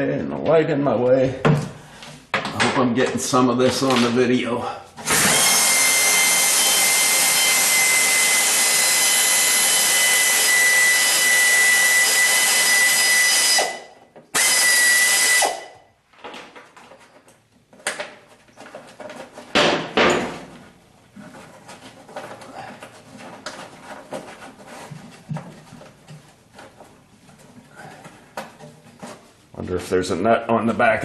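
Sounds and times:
knocks: 19.5s - 20.6s.

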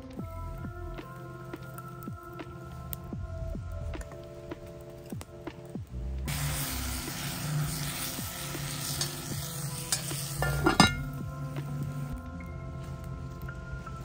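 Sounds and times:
potatoes sizzling in a pot: 6.3s - 11.9s
cast-iron lid clanking: 9.9s - 11.2s.

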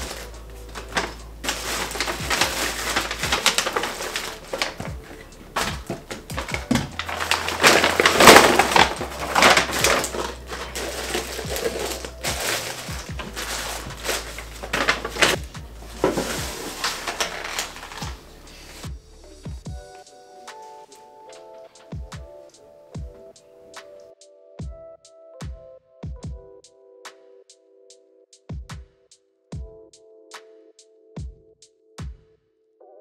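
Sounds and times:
objects knocking: 0.0s - 18.2s
paper bags rustling: 0.0s - 18.9s.

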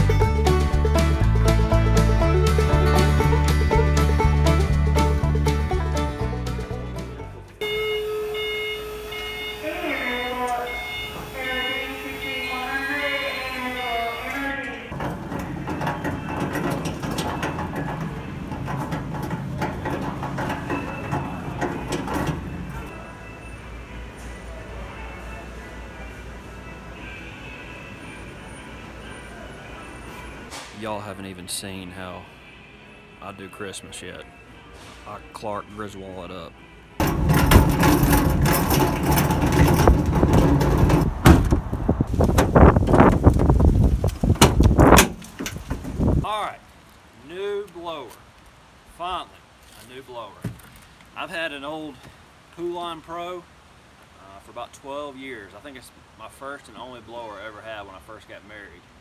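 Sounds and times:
cart wheels rattling on concrete: 14.9s - 22.9s, 37.0s - 41.5s
wind buffeting microphone: 37.2s - 46.3s.

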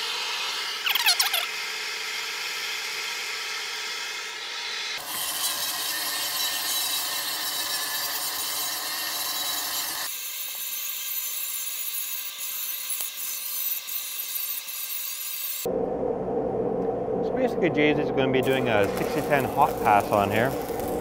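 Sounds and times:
angle grinder grinding steel: 0.0s - 15.7s.

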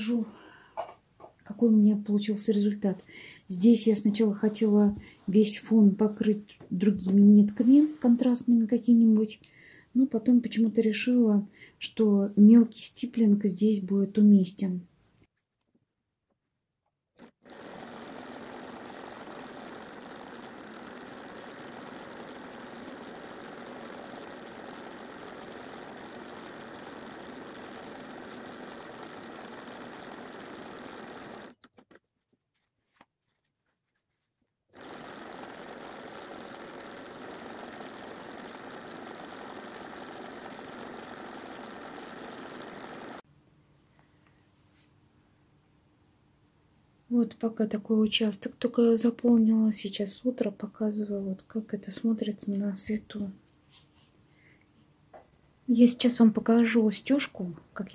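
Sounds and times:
sewing machine running: 17.2s - 31.7s, 34.8s - 43.2s
sewing machine clicks: 17.2s - 32.0s, 34.8s - 43.2s.

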